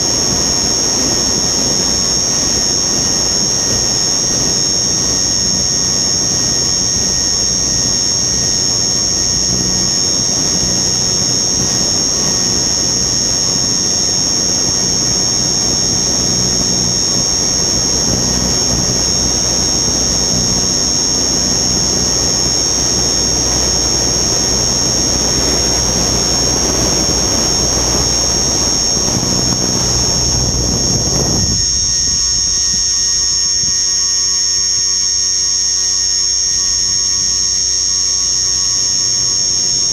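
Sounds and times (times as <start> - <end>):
high-pitched motor whine: 0.0 - 39.9
low hum: 14.6 - 35.7
rotor and wind rushing: 17.7 - 34.0.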